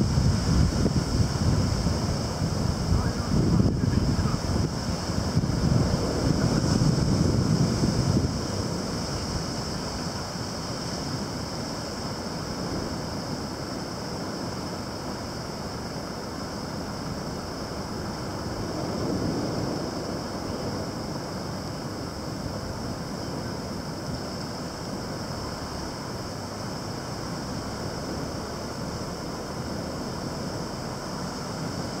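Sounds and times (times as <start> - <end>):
surf breaking on rocks: 0.0 - 15.6.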